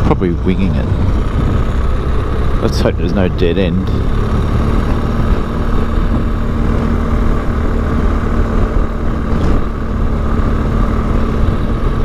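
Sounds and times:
motorcycle engine drone: 0:00.0 - 0:12.0
wind rumble on microphone: 0:00.0 - 0:12.0.

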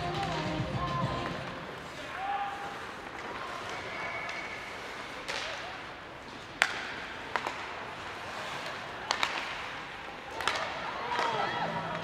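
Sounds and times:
rink crowd hubbub: 0:00.0 - 0:12.0
hockey stick hitting puck: 0:06.3 - 0:11.4.

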